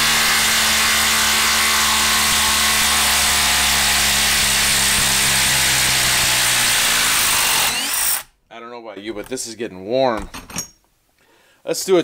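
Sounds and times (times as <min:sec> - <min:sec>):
impact driver hammering: 0:00.0 - 0:08.3.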